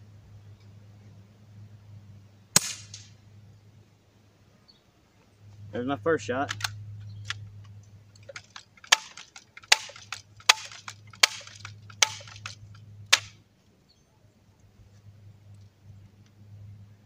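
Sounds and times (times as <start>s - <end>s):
steady low hum: 0.0s - 17.0s
gun lever clicks: 6.4s - 7.4s, 8.1s - 13.3s.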